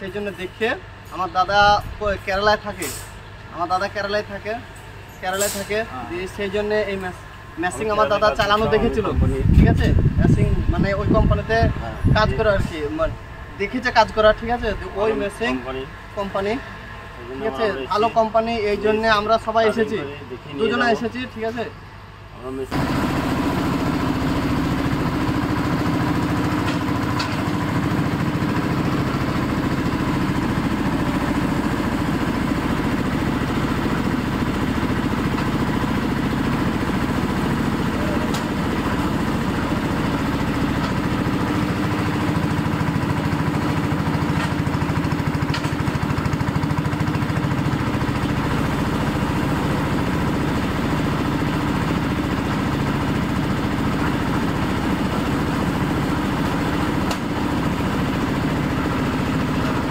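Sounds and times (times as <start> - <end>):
diesel engine running steadily: 0.0 - 59.9.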